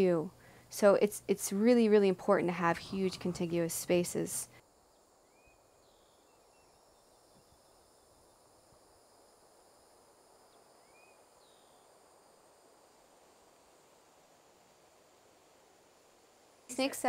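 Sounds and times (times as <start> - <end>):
faint bird chirps: 4.9 - 8.4, 10.4 - 12.0.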